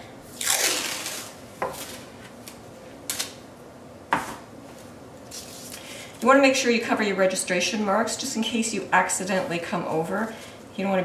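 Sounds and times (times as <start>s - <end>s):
tape ripping off roll: 0.4s - 2.0s.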